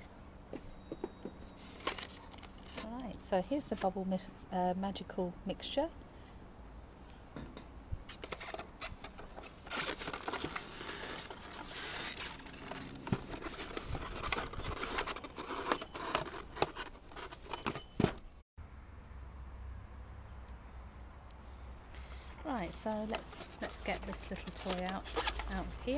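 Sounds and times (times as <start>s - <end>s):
plastic scraping against polystyrene: 8.1s - 18.2s, 22.4s - 25.9s.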